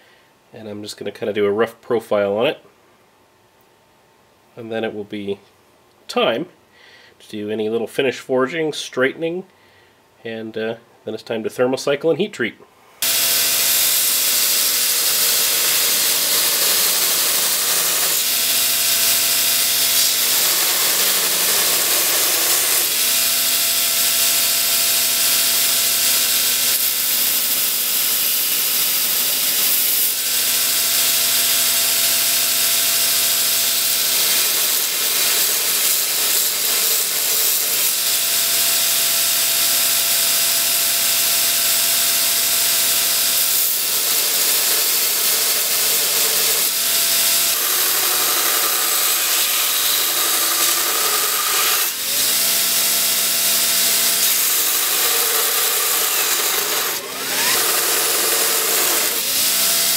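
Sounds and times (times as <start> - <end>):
belt grinder grinding steel: 13.0 - 59.9
grinder motor hum: 13.0 - 59.9.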